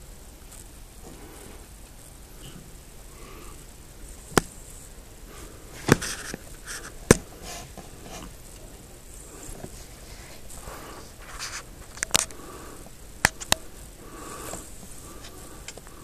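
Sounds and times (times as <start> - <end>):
soft rustling and scraping: 0.4 - 16.0
sharp clicks: 13.2 - 13.7.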